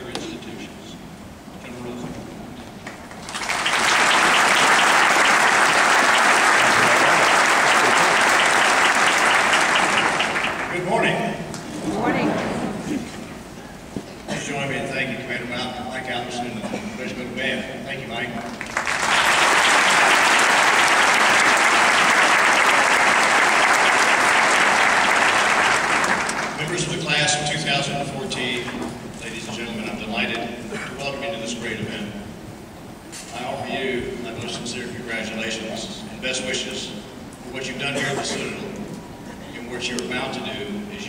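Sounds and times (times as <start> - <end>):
large audience applauding: 2.8 - 10.9, 18.5 - 26.9.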